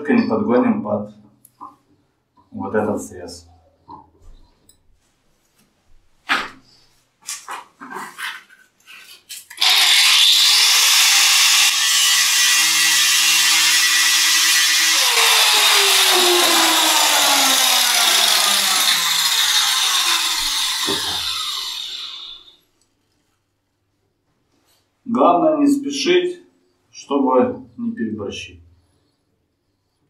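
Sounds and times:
power grinder grinding: 9.5s - 22.6s.

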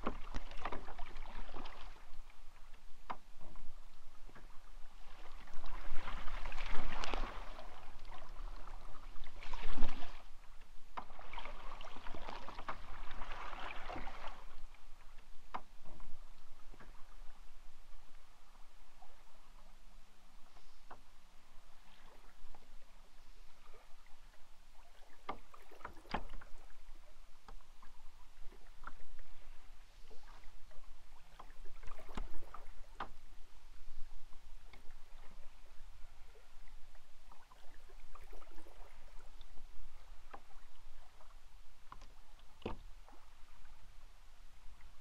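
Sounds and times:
paddle splashing in water: 0.0s - 18.0s, 20.5s - 44.1s.

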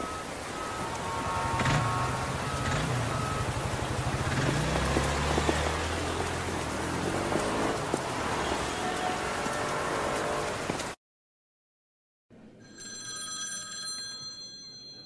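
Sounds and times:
high electronic beep: 0.0s - 3.6s
low vehicle engine rumble: 0.0s - 10.7s
street background hiss: 0.0s - 11.0s.

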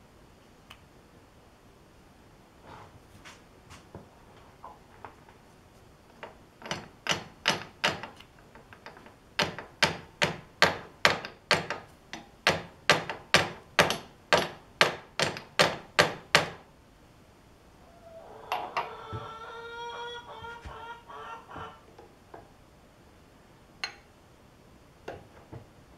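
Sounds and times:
steel block tapping metal: 23.8s - 24.1s.

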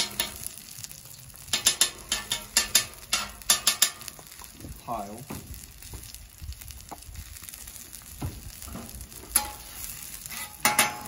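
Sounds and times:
metal spatula scraping griddle: 0.0s - 0.6s, 1.5s - 4.1s, 8.7s - 11.0s
food sizzling on a griddle: 0.0s - 11.0s.

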